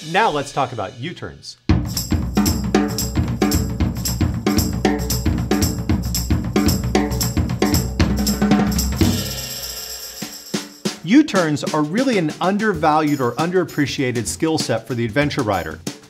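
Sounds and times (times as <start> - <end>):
theme music with drum beat: 0.0 - 16.0
bass line: 1.7 - 9.4.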